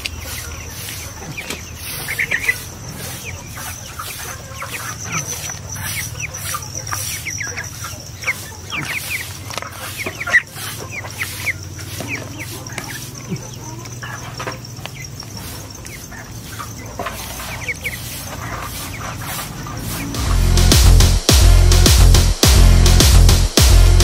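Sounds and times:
young chickens clucking and peeping: 0.0 - 20.3
steady high-pitched tone: 20.1 - 24.0.

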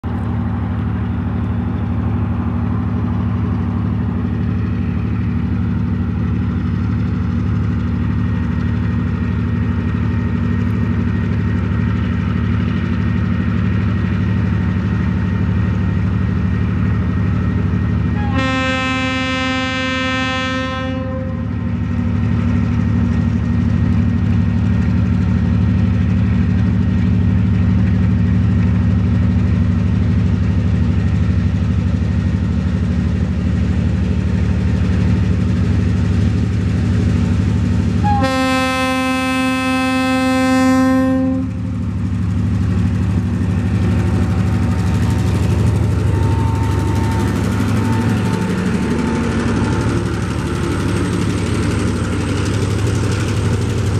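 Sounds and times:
locomotive engine drone: 0.0 - 53.9
locomotive horn blast: 18.1 - 21.6, 38.0 - 41.7, 46.1 - 49.8.

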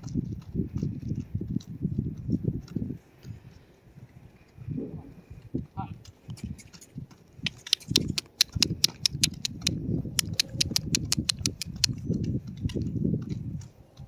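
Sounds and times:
horse hooves on gravel: 0.0 - 4.6, 5.4 - 14.0
low rumble: 4.1 - 6.0.

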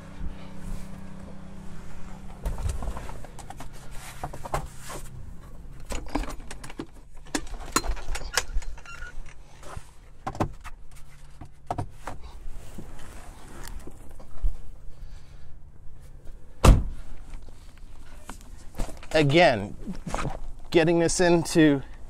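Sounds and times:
low steady hum: 0.0 - 22.0
latches clicking and rattling: 5.8 - 9.4.

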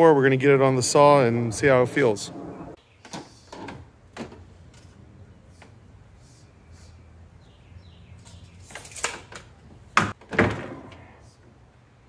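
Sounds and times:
low hum: 0.1 - 2.8.

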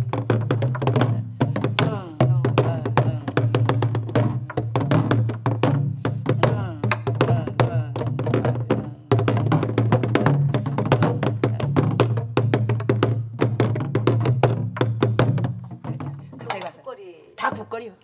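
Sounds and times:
palms thudding on drum heads: 0.0 - 16.8
sticks clacking on drum frames: 15.6 - 16.8.

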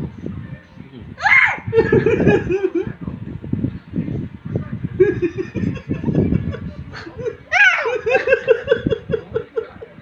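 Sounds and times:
man laughing: 5.0 - 10.0.

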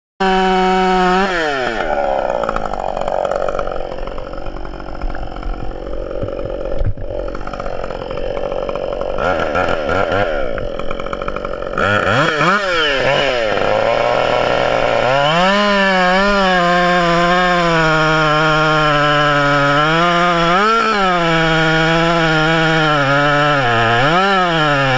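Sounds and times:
chainsaw cutting wood: 0.2 - 24.9.

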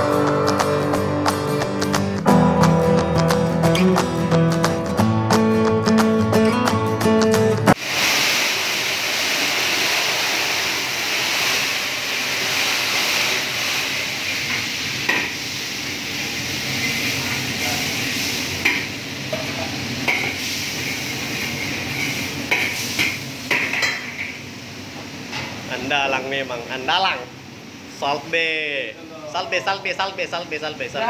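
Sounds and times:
wok sizzling: 7.7 - 26.0, 26.6 - 28.9.

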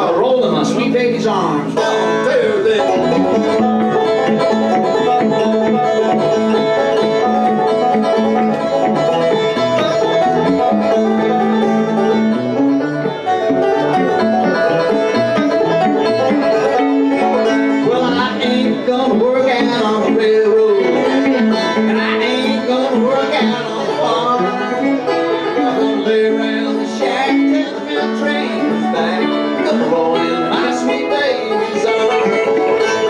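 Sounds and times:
banjo: 0.0 - 33.0
electric guitar: 0.0 - 33.0.

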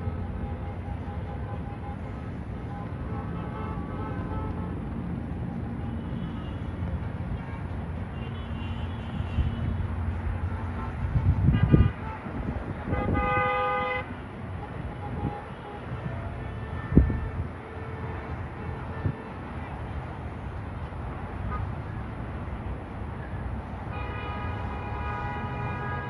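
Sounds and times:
traffic hum: 0.0 - 26.0
car horns honking: 10.5 - 19.6, 23.9 - 26.0.

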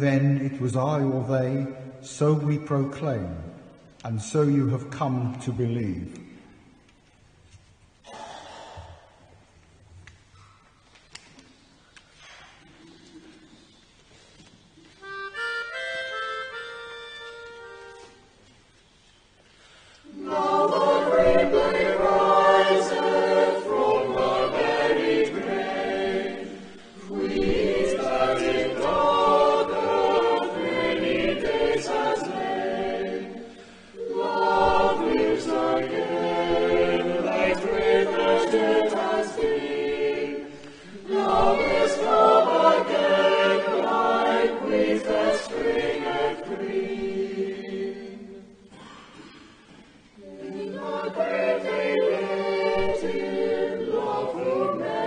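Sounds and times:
choir singing in parts: 20.0 - 55.0.

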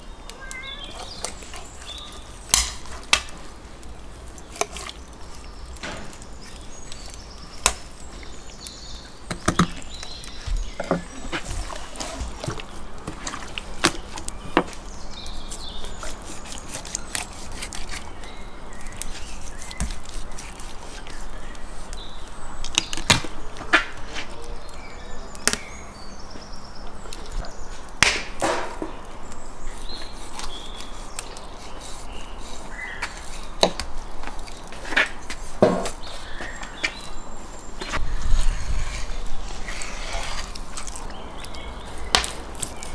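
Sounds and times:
knife cutting and scraping fish: 4.5 - 5.0, 15.5 - 18.3, 18.9 - 21.3, 37.9 - 42.9.

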